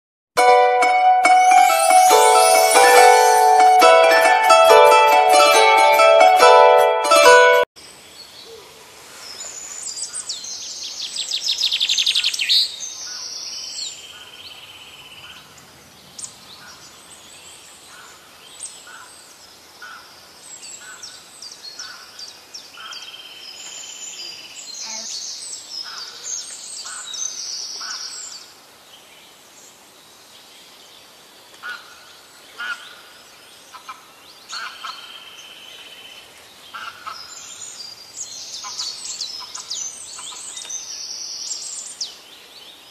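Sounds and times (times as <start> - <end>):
birds chirping and calling: 38.4 - 40.9.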